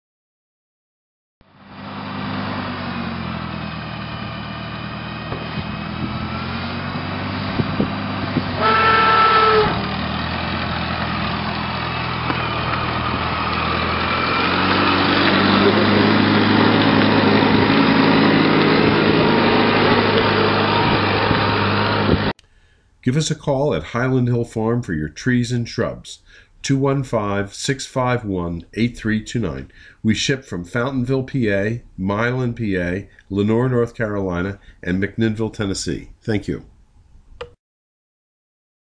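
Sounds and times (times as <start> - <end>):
tractor engine running: 1.4 - 22.3
horn honking: 8.6 - 10.0.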